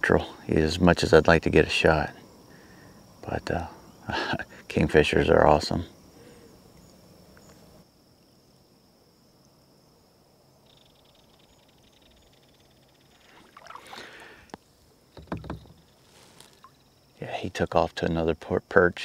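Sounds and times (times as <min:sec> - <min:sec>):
kayak paddle splashing: 0:13.2 - 0:14.6, 0:15.2 - 0:16.8.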